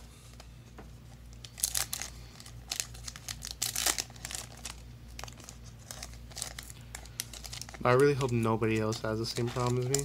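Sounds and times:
foil wrapper crinkling and tearing: 1.3s - 10.0s.

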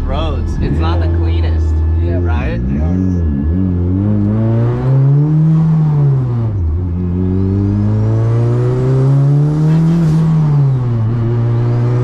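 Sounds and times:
turbo whine: 0.0s - 7.8s
car engine accelerating: 0.0s - 12.0s.

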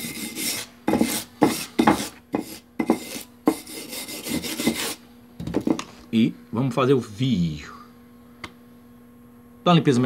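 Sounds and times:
wire brush rasping on steel: 0.0s - 5.0s.

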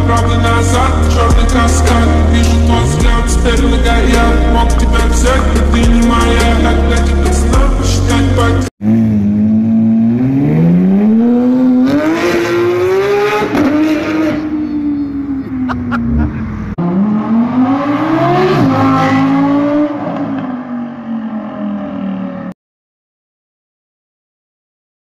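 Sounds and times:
sports car engine revving: 0.0s - 22.4s
sports car engine accelerating: 0.0s - 22.5s.

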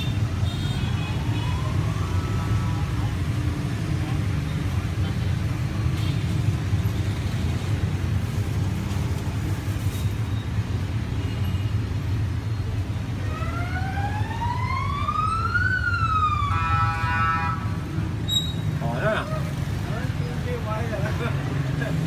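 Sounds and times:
street traffic rumble: 0.0s - 22.0s
siren wailing: 13.2s - 17.0s.

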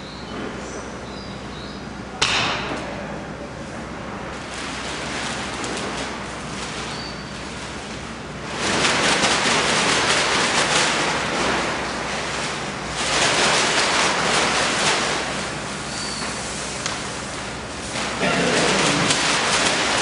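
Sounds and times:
plastic bag rustling: 4.4s - 20.0s.

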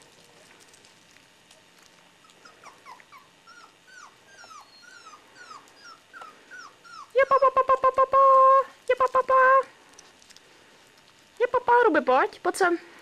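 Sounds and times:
puppy whimpering squeaks: 2.2s - 7.9s.

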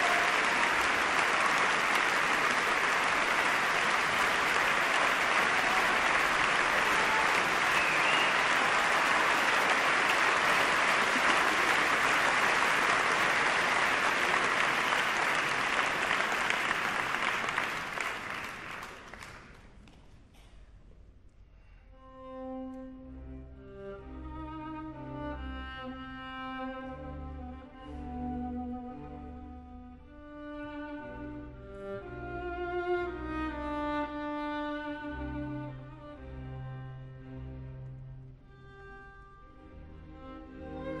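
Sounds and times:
audience applauding: 0.0s - 20.0s.

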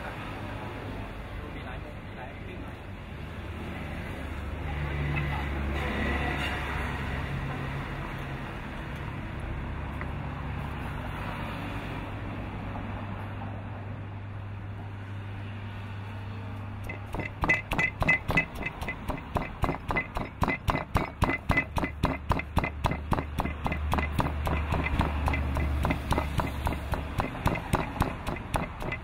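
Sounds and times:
pestle pounding in mortar: 16.8s - 29.0s.

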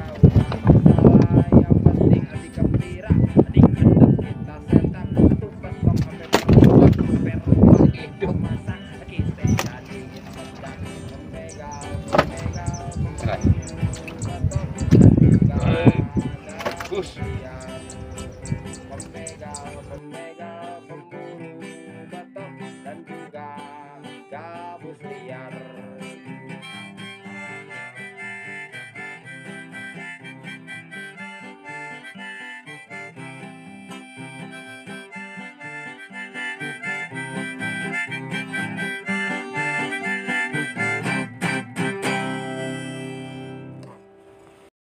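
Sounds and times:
instrumental background music: 0.0s - 20.8s, 25.8s - 44.6s.

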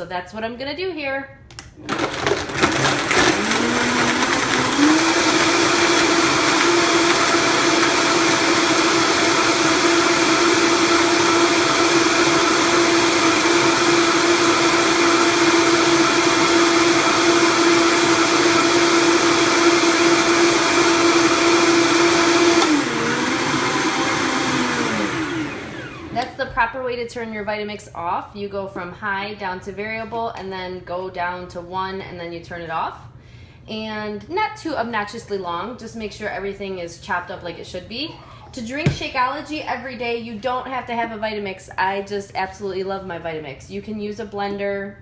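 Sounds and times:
blender blending ice: 1.8s - 26.3s.

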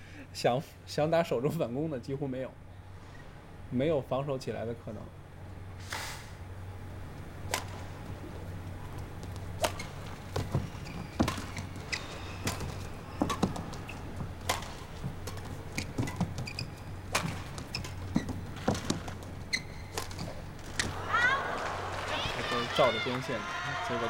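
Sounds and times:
low arena hum: 0.0s - 24.0s
racket striking shuttlecock: 7.4s - 8.4s, 9.5s - 21.0s
shoes squeaking on court floor: 7.5s - 21.3s.

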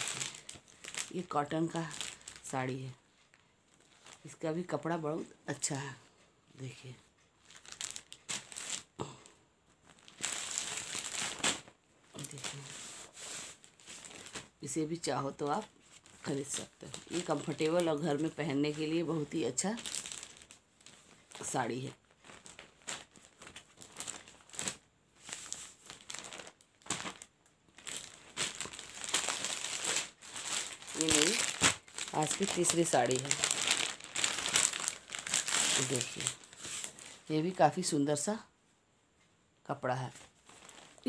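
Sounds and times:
cloth rustling: 9.7s - 14.7s, 15.3s - 37.8s, 40.1s - 41.0s.

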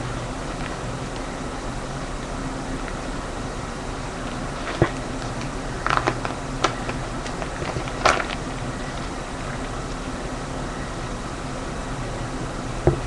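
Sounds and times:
steady background noise: 0.0s - 13.0s
plastic pages crackling: 4.2s - 10.1s.

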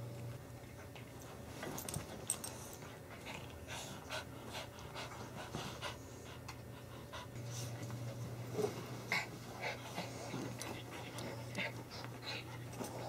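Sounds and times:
dogs panting: 2.6s - 7.9s, 9.1s - 13.0s.

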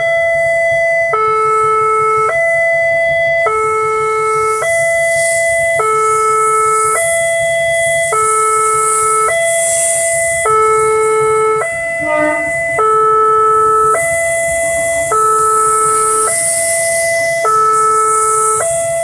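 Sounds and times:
level crossing two-tone alarm: 0.0s - 19.0s
rushing noise: 13.4s - 19.0s.

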